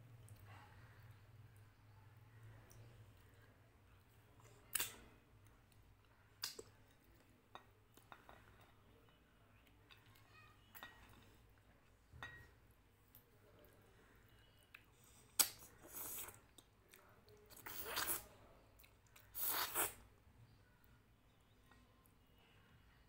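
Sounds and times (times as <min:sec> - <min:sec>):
glass bowl clinking on plate: 0:12.1 - 0:12.6.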